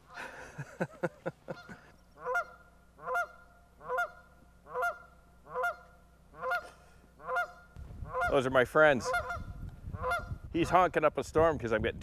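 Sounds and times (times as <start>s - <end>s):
goose honking: 1.5s - 10.8s.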